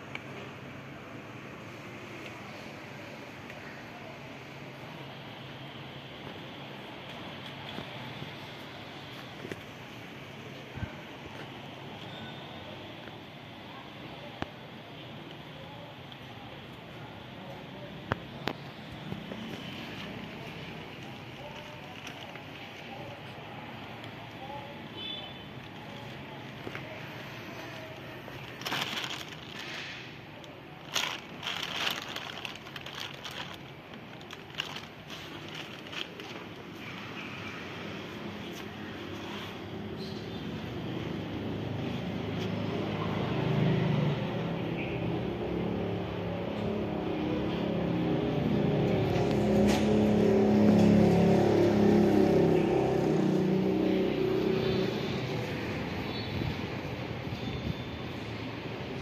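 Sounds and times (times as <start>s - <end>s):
plastic bag crinkling: 20.2s - 23.2s, 27.6s - 37.2s
vehicle engine passing by: 41.0s - 56.1s.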